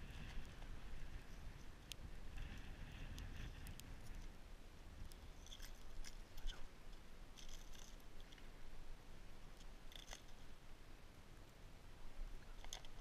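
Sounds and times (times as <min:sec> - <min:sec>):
steady low rumble: 0:00.0 - 0:12.6
small clicks and crunches: 0:07.4 - 0:08.5, 0:09.6 - 0:10.5, 0:12.6 - 0:13.0.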